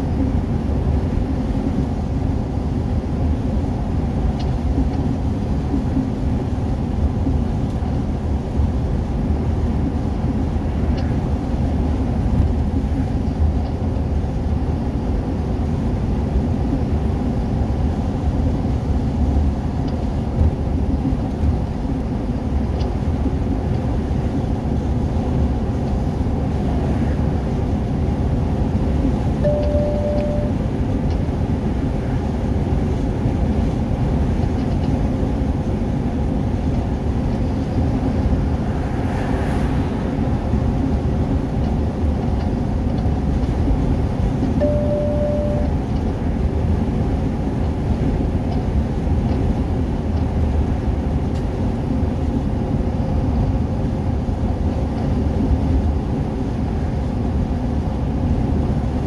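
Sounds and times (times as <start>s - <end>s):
engine and tyre rumble: 0.0s - 59.0s
short beeps: 29.4s - 30.6s, 44.6s - 45.8s.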